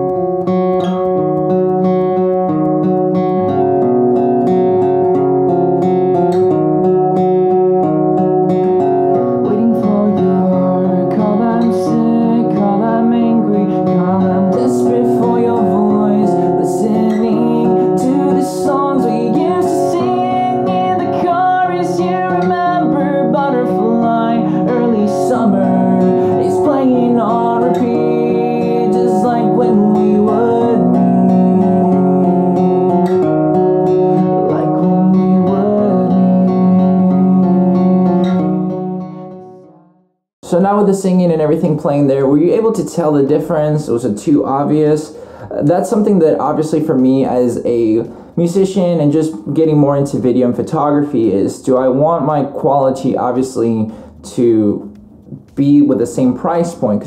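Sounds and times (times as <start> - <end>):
acoustic guitar: 0.0 - 57.0
man singing: 9.2 - 33.4, 34.1 - 39.0.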